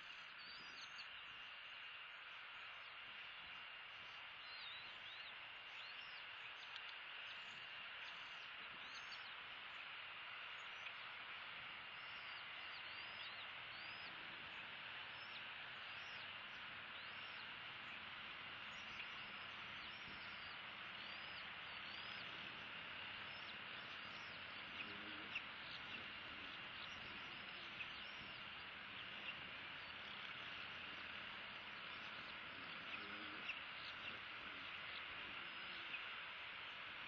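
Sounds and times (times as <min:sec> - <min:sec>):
birds chirping: 0:00.0 - 0:37.0
steady outdoor hiss: 0:00.0 - 0:37.0.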